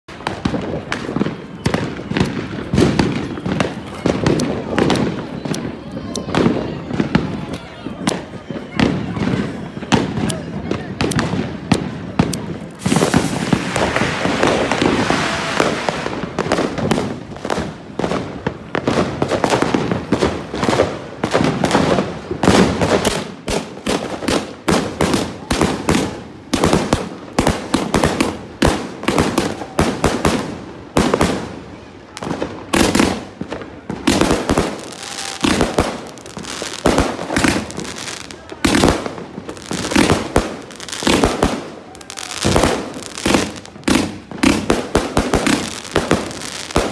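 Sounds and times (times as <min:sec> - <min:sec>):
fireworks launch thumps and bursts: 0:09.9 - 0:30.4.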